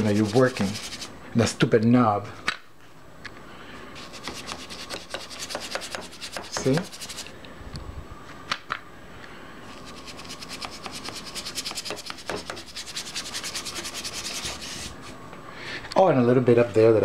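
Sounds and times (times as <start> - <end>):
paintbrush scrubbing paper: 0.0 - 1.1, 4.0 - 7.3, 9.7 - 15.1.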